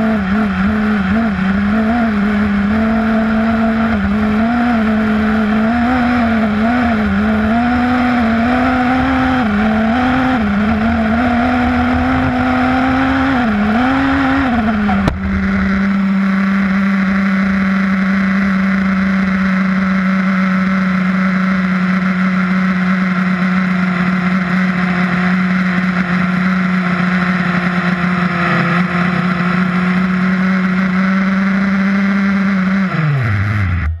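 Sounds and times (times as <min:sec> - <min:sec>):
steady hum: 0:10.4 - 0:18.0.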